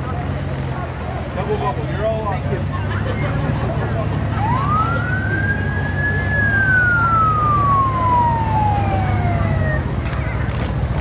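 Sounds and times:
passing vehicle engines rumble: 0:00.0 - 0:11.0
siren wailing: 0:04.4 - 0:09.9.

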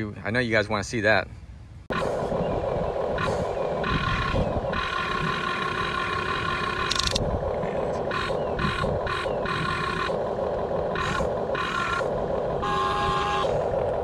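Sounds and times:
small electric motors whining: 0:03.2 - 0:14.0.

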